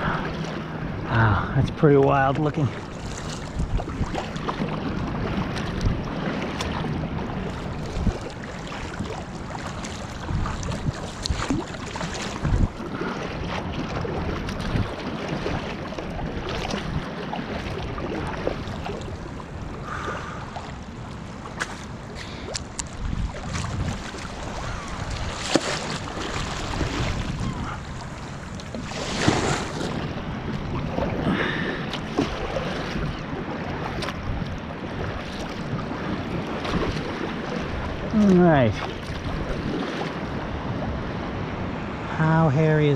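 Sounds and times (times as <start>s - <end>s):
paddle strokes splashing water: 0.0s - 42.5s
water lapping against hull: 0.0s - 42.9s
wind noise on microphone: 3.0s - 17.1s, 22.4s - 42.1s.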